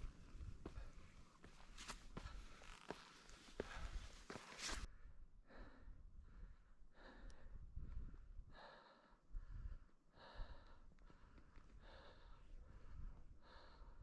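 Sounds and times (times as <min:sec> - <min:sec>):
low wind rumble: 0:00.0 - 0:01.4, 0:04.9 - 0:14.0
person breathing: 0:00.1 - 0:14.0.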